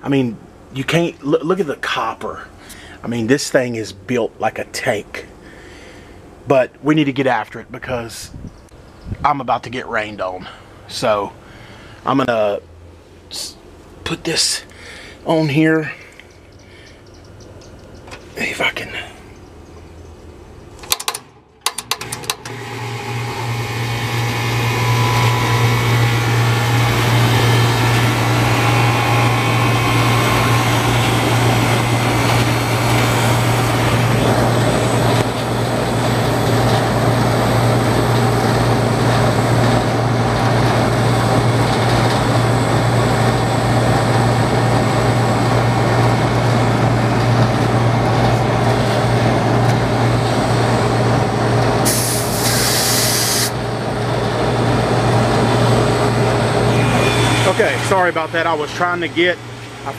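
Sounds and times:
compressor humming: 12.8 - 59.9
condenser fan rushing: 20.8 - 59.9
brief hiss: 51.9 - 53.6.

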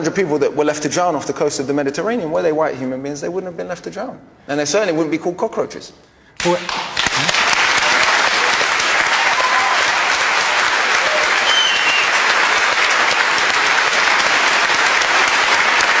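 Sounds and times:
audience applauding: 6.5 - 16.0.

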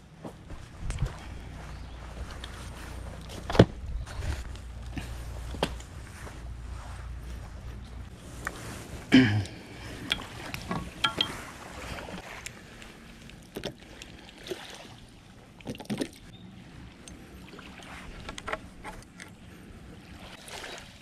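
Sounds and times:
metal tubes clacking together: 10.0 - 11.4.

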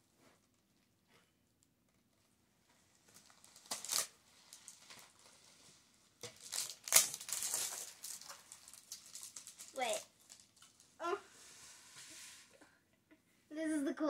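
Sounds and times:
plastic wrapping crinkling: 2.9 - 11.0
tape ripping: 3.1 - 5.3, 6.2 - 10.8.

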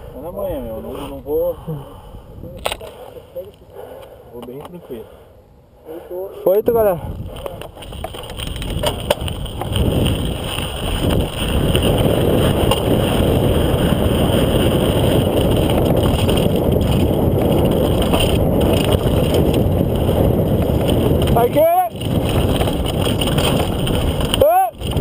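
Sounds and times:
wind rushing over microphone: 0.0 - 3.9, 6.5 - 25.0
bicycle tyres rumbling on dirt: 6.6 - 25.0.

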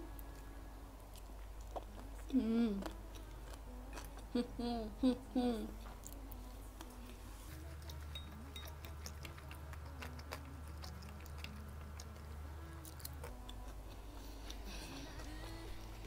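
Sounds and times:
low steady hum: 0.0 - 16.0
mouth chewing: 5.7 - 16.0.

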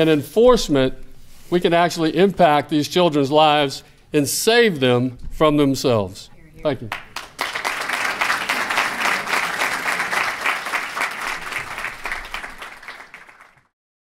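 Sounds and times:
audience applauding: 6.9 - 13.7.

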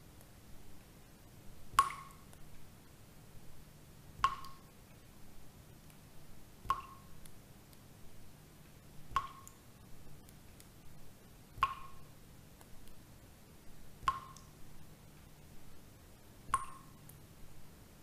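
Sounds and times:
water drips plinking: 1.7 - 2.4, 4.2 - 4.7, 6.6 - 7.1, 9.1 - 9.6, 11.6 - 12.1, 14.0 - 14.6, 16.5 - 17.2.

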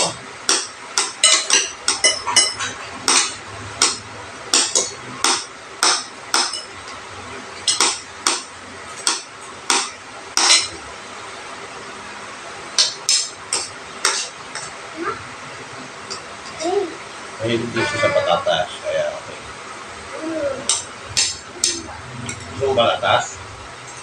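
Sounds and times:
cutlery clinking on ceramic bowls: 1.1 - 3.4.

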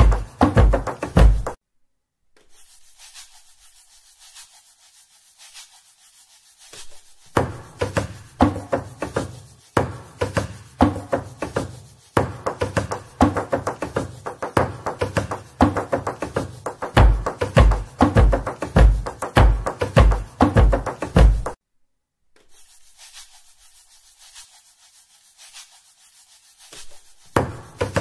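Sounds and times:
hand percussion music: 0.0 - 1.6, 7.4 - 21.6.

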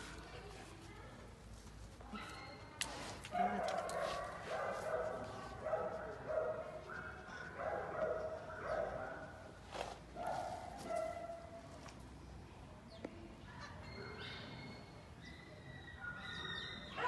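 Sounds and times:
dog barking: 3.4 - 9.4, 10.2 - 11.5.

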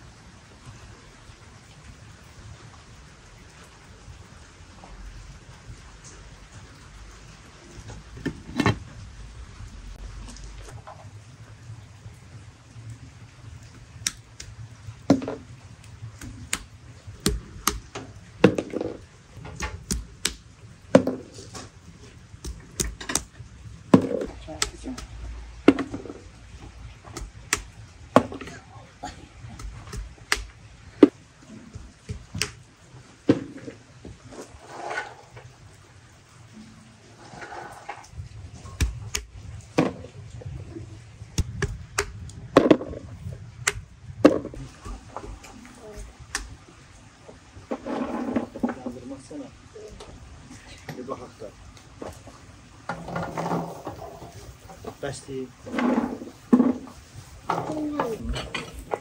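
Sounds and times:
stone knocking chestnuts on wood: 16.2 - 19.0, 19.6 - 20.4, 22.4 - 23.3, 29.6 - 31.2
chestnuts knocking: 27.1 - 28.6.

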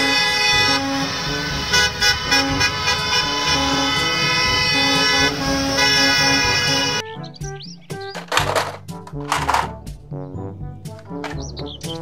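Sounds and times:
buzzy electronic horn tone: 0.0 - 7.2.

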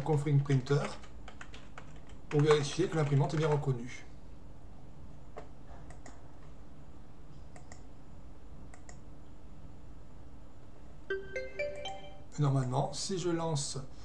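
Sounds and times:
faint steady hum: 0.0 - 14.0
mouse and keyboard clicks: 5.4 - 6.2, 7.5 - 7.9
electronic notification chime: 11.1 - 12.4.

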